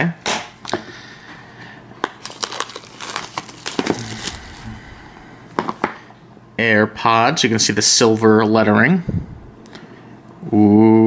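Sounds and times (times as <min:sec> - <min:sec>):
plastic wrap crinkling: 0:02.0 - 0:06.0.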